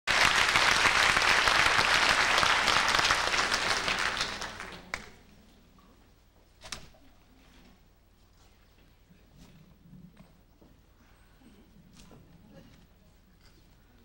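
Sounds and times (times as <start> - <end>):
audience applauding: 0.0 - 5.2.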